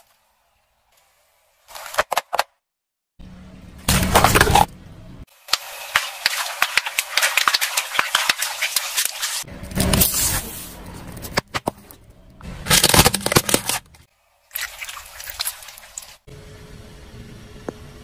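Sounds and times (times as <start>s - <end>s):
plastic bottles bursting: 12.6s - 14.0s.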